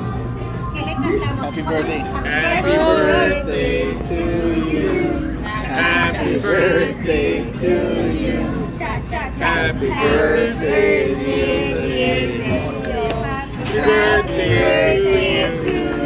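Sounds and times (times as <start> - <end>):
group singing birthday song: 1.0 - 16.0.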